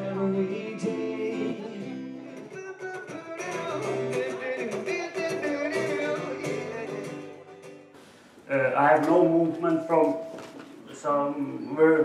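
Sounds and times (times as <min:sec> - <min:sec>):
person singing: 0:00.0 - 0:07.7
acoustic guitar playing: 0:00.0 - 0:12.0.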